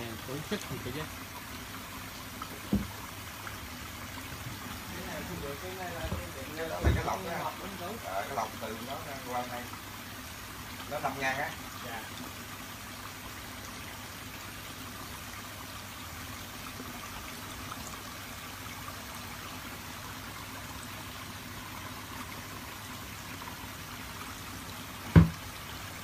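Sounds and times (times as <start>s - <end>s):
water trickling: 0.0s - 26.0s
sharp thump: 25.1s - 25.4s.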